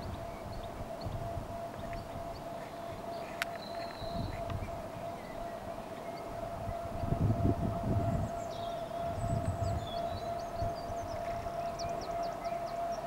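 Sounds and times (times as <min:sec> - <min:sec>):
diesel locomotive whine and rumble: 0:00.0 - 0:13.0
small birds chirping: 0:01.8 - 0:06.3, 0:08.2 - 0:13.0.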